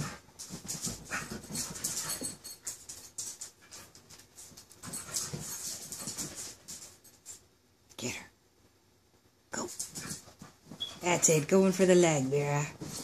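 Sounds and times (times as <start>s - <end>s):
dogs breathing: 0.0s - 4.1s.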